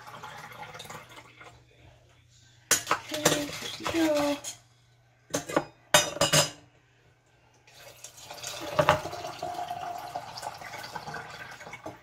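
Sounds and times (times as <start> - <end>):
water pouring into a glass jar: 0.0 - 1.6, 7.7 - 12.0.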